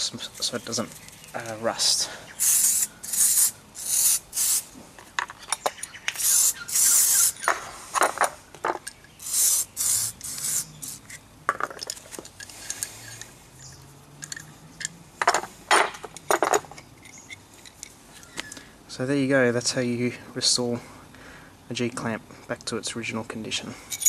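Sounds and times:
aerosol can spraying: 2.4s - 4.7s, 6.1s - 7.4s, 9.2s - 11.1s
metal clamps clicking and knocking: 11.5s - 13.3s, 14.2s - 17.9s.

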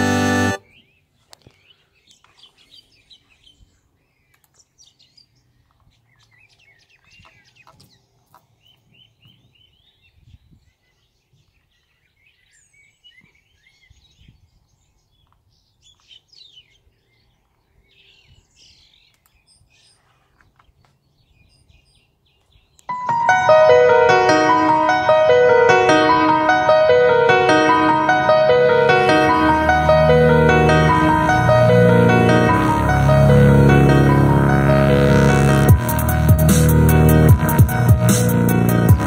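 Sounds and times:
music from a speaker: 0.0s - 0.6s, 22.9s - 39.0s
faint birdsong and chirps: 0.6s - 23.0s.

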